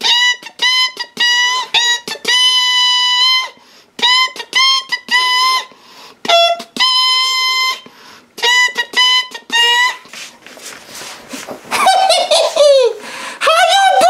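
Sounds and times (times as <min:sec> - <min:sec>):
trumpet-like melody: 0:06.3 - 0:07.8, 0:08.4 - 0:10.1.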